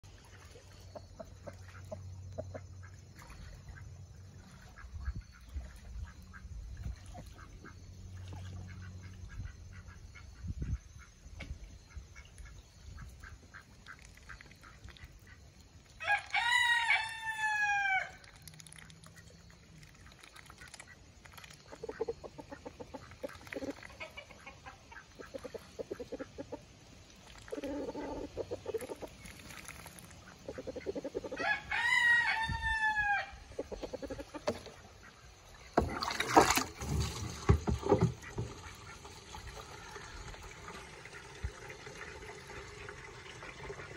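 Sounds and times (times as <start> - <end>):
rooster crowing: 16.0 - 18.2, 31.3 - 33.4
ducks quacking: 20.0 - 26.6, 27.4 - 31.4, 33.5 - 36.1.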